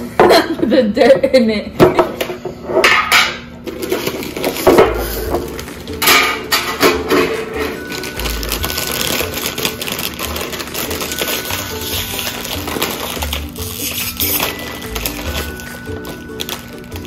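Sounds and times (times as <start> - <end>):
foil bag crinkling: 3.6 - 17.0.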